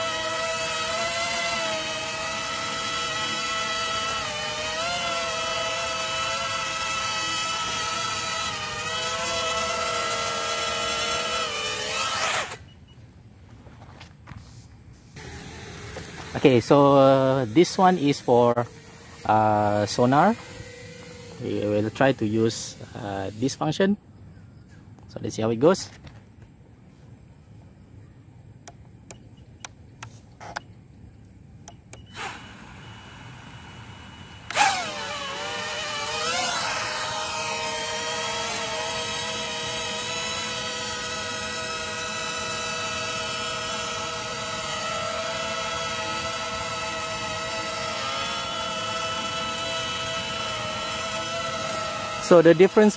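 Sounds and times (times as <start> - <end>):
quadcopter motors whining: 0.0 - 12.9, 15.1 - 23.9, 28.6 - 30.8, 31.6 - 52.9
sharp clicks: 28.6 - 32.3.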